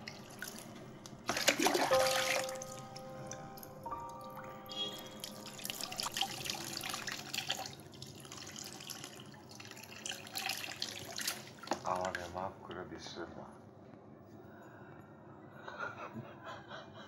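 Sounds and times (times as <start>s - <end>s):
water splashing and dripping: 0.0s - 4.4s, 5.0s - 12.3s.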